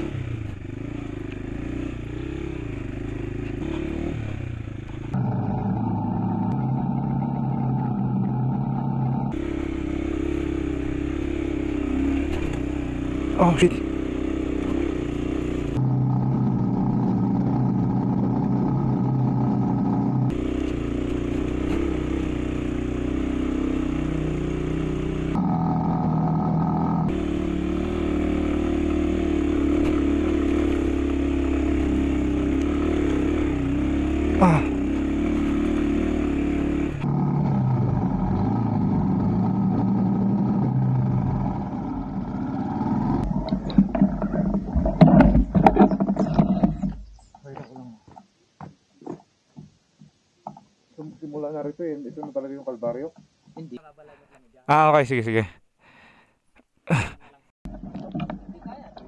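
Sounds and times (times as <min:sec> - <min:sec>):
motorcycle engine running: 0:00.0 - 0:47.7.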